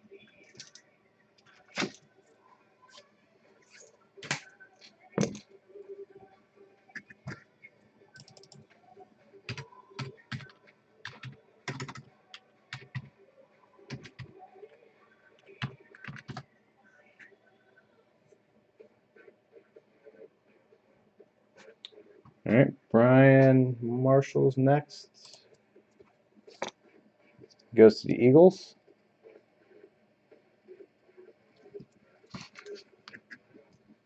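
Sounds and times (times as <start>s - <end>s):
typing on a computer keyboard: 0.5s - 0.8s, 8.1s - 8.8s, 9.5s - 13.1s, 13.9s - 14.4s, 15.4s - 16.5s.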